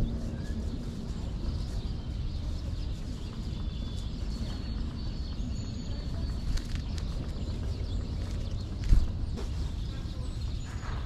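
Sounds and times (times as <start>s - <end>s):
small songbirds calling: 0.0s - 11.0s
steady low rumble: 0.0s - 11.0s.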